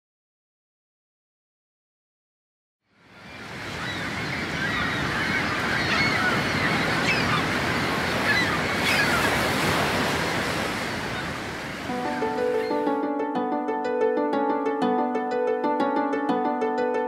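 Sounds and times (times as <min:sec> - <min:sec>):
sea surf washing: 0:03.0 - 0:17.0
birds calling: 0:03.2 - 0:13.2.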